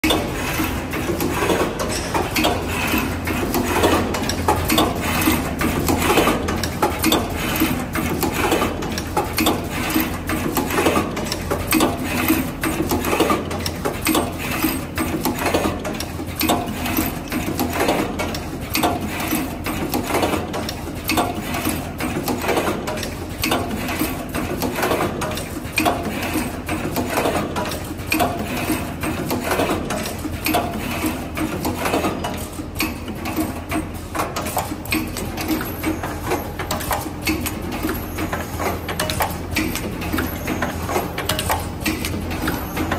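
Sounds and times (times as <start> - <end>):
rapid mechanical clicking and clattering: 0.0 - 42.9.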